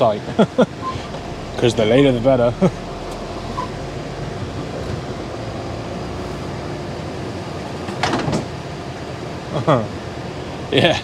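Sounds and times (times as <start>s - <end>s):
truck diesel engine running: 0.3s - 7.9s.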